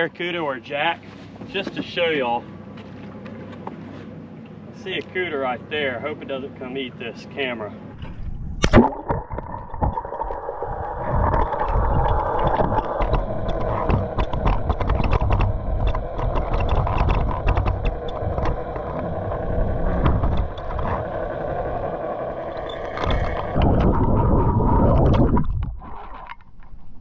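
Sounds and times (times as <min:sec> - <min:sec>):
sharp underwater clicks: 0:08.0 - 0:21.1
muffled underwater hum: 0:08.0 - 0:25.8.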